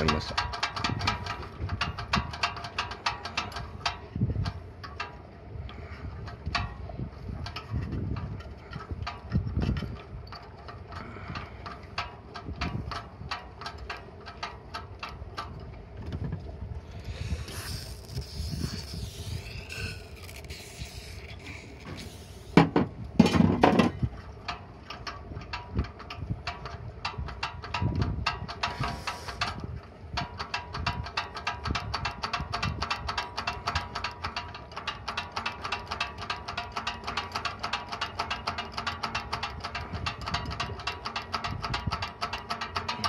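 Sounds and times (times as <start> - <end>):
throttle linkage metallic clicks: 0.0 - 5.2, 24.5 - 43.0
soft rubbing and hiss: 17.0 - 22.6.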